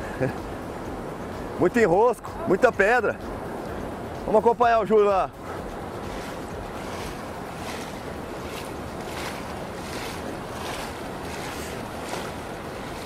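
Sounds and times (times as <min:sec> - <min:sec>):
river rapids rushing: 0:00.0 - 0:13.0
wind rumbling on microphone: 0:05.2 - 0:13.0.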